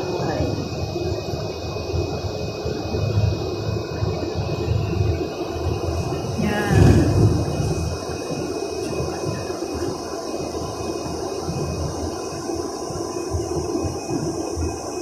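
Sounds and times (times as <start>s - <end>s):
bus engine rumble: 0.0s - 12.8s
road noise: 4.8s - 9.9s.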